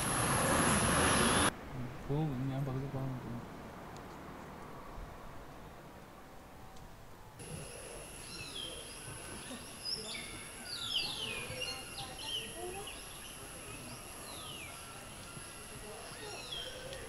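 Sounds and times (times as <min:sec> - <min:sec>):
high insect drone: 0:00.0 - 0:01.5, 0:07.4 - 0:17.0
birds chirping: 0:07.4 - 0:17.0.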